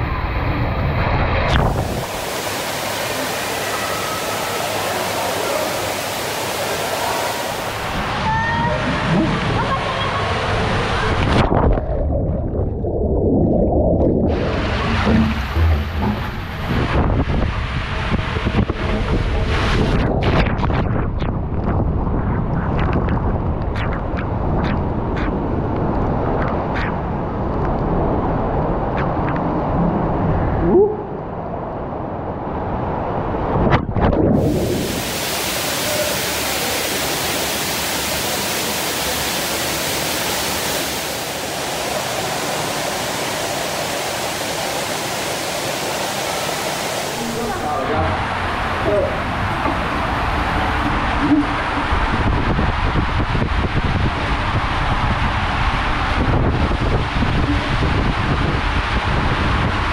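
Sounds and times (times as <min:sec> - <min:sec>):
water rumbling through slide tube: 0:00.0 - 0:06.0, 0:06.6 - 0:37.2, 0:47.1 - 0:59.9
rushing water hiss: 0:01.5 - 0:11.4, 0:14.3 - 0:20.4, 0:34.4 - 0:59.9.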